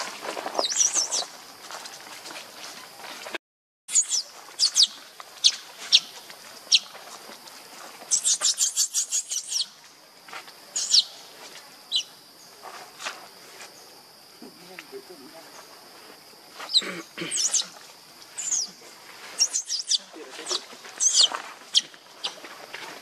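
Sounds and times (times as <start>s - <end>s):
high-pitched animal chirps: 3.9s - 6.1s, 16.7s - 17.7s, 19.4s - 22.4s.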